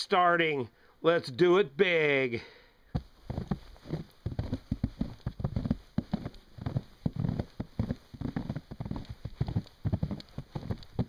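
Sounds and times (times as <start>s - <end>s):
boots crunching through snow: 3.0s - 11.0s.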